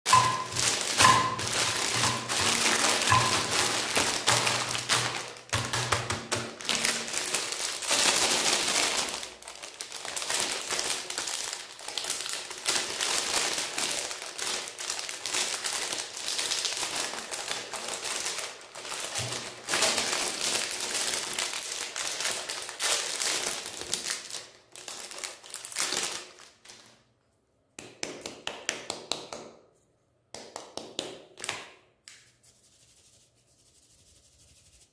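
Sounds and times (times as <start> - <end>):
wrappers crinkling and tearing: 0.1 - 27.0.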